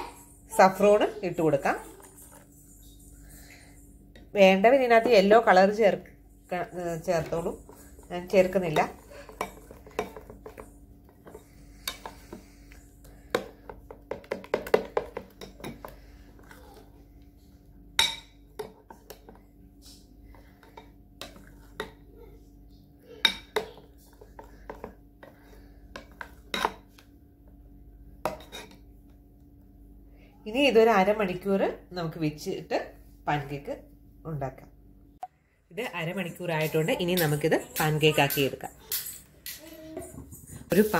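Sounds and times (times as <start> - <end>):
faint steady hum: 0.0 - 40.9
spoon scraping glass bowl: 1.6 - 4.0.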